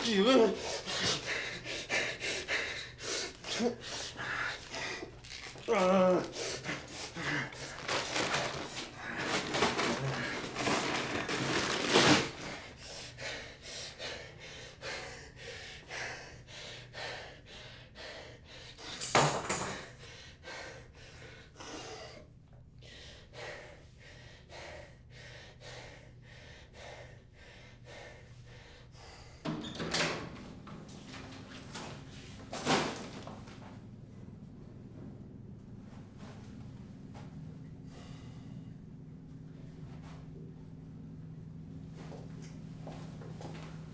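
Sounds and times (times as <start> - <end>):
man breathing hard: 0.1 - 5.6, 6.2 - 29.5, 37.8 - 38.8.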